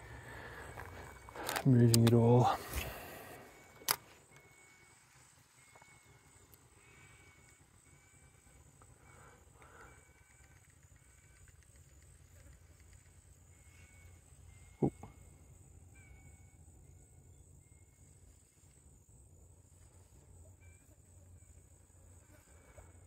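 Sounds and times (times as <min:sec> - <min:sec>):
distant birds calling: 0:00.0 - 0:18.2.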